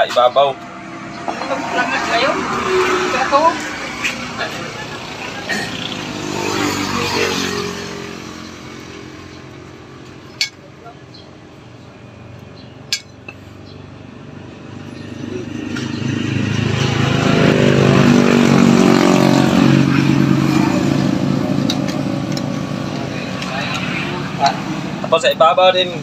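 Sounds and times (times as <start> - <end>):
passing vehicle engines: 0.0 - 26.0.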